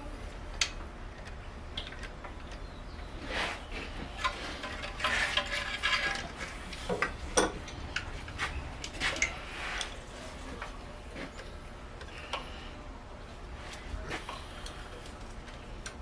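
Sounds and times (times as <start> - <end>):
rattling scrape: 3.2 - 6.9.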